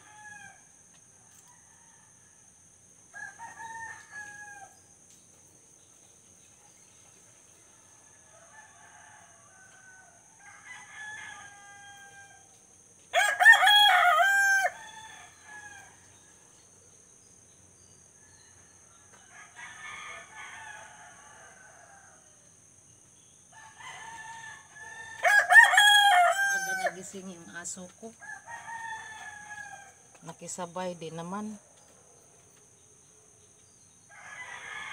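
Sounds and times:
distant roosters crowing: 0.0 - 4.9, 7.8 - 12.5, 13.1 - 16.4, 18.1 - 22.8, 23.4 - 30.5, 33.4 - 34.9
rooster crowing loudly: 3.1 - 4.8, 8.3 - 12.5, 13.1 - 15.9, 23.6 - 27.1, 28.2 - 30.0, 34.1 - 34.9.

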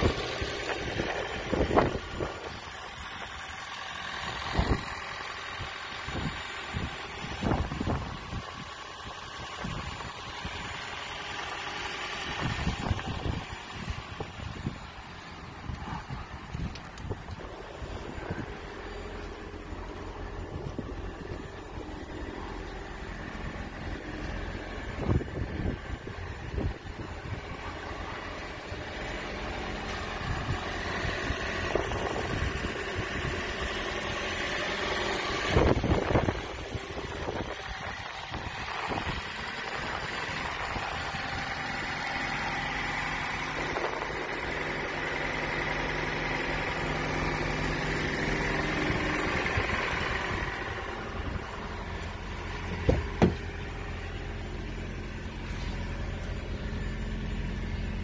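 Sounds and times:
car engine idling: 0.0 - 58.0
wind buffeting microphone: 23.8 - 29.2.

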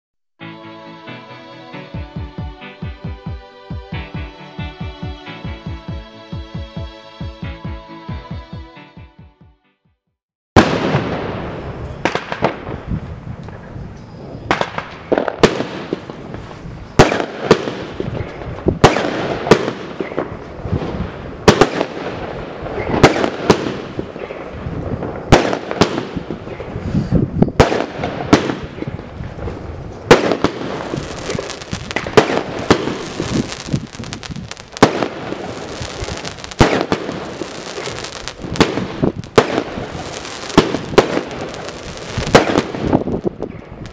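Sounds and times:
firework cake shots bursting: 30.1 - 43.2.

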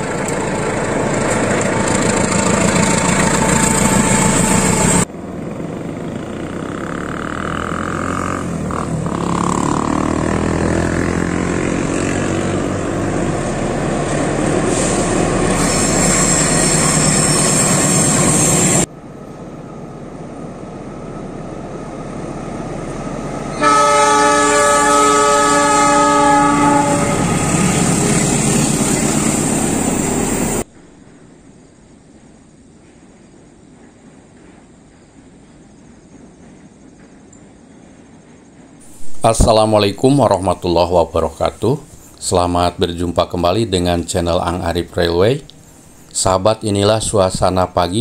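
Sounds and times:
train wheels rumbling on bridge: 0.0 - 48.0
train horn blast: 23.5 - 28.0
high whine: 38.8 - 48.0.

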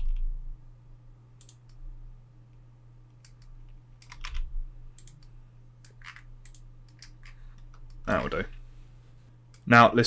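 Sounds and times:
low electrical hum: 0.0 - 10.0
keyboard key presses: 3.2 - 5.3.

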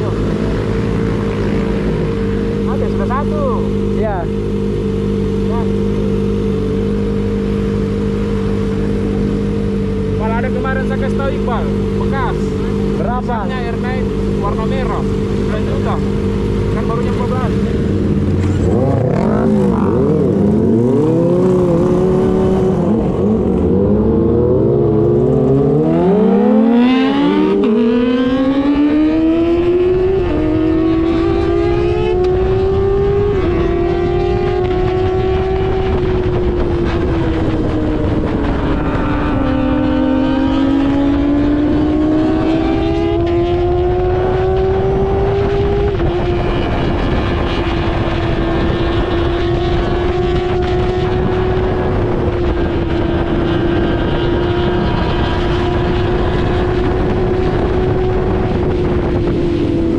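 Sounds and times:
motorcycle accelerating through gears: 0.0 - 59.9
motorcycle engine revving: 0.0 - 59.9.

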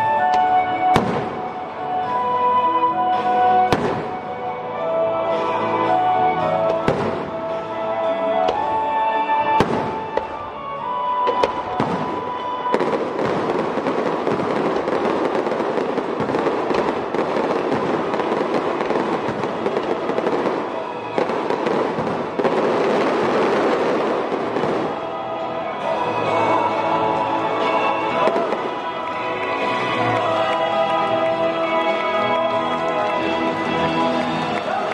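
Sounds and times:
fireworks crackling: 0.0 - 34.9
fireworks exploding: 0.0 - 34.9.

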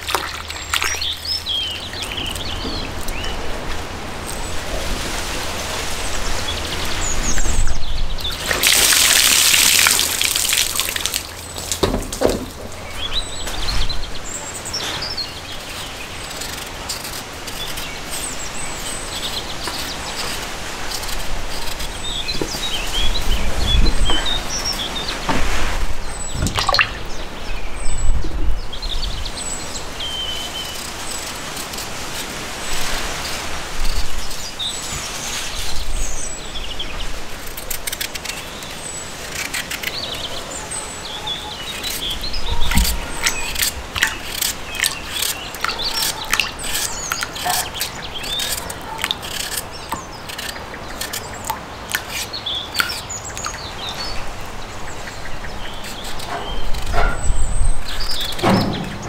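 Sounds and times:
small birds chirping: 0.0 - 4.9, 5.6 - 59.0
knife peeling potatoes: 41.8 - 53.0.

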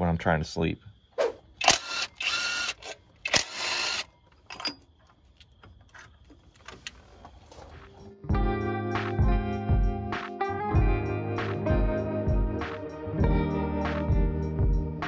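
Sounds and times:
cordless power ratchet running: 1.6 - 4.1
sharp clicks: 1.6 - 4.1.

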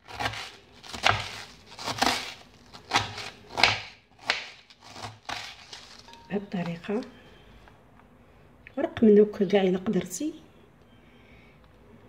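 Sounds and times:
knife slicing cabbage: 0.0 - 6.1.

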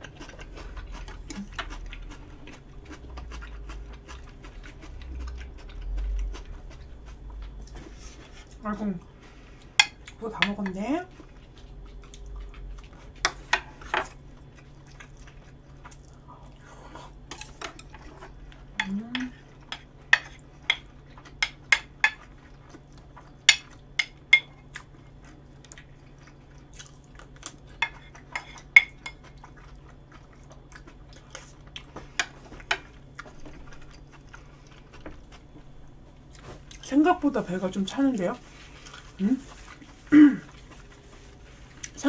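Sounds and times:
short voiced hum: 40.1 - 40.5.

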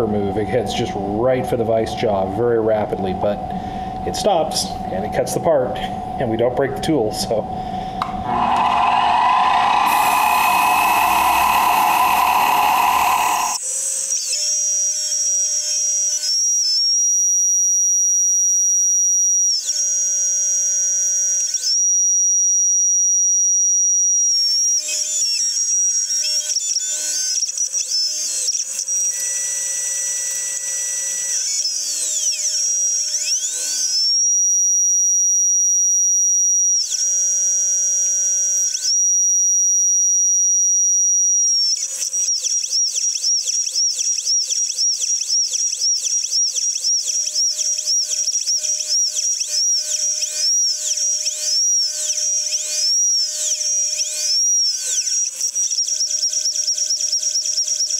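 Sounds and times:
milling machine whine: 7.4 - 13.6
hissing rush: 8.1 - 13.6.

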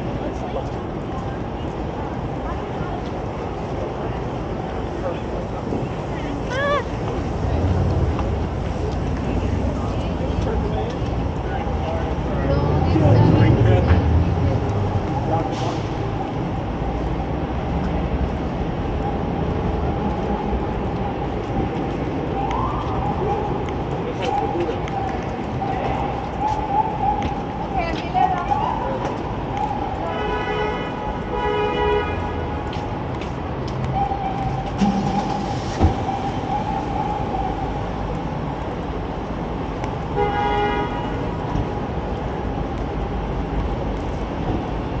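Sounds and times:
low street rumble: 0.0 - 45.0
traffic engines: 0.0 - 45.0
short pitched tone: 34.0 - 37.6.

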